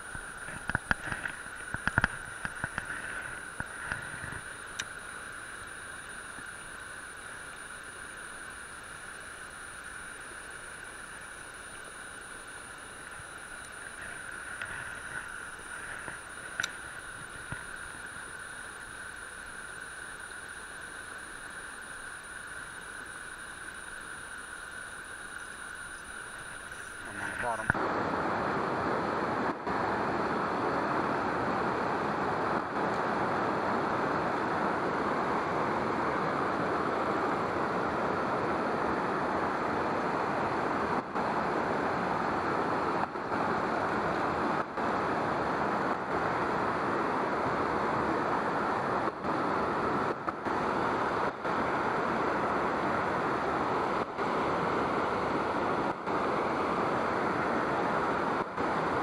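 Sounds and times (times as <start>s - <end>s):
running water rushing: 0.0s - 27.8s.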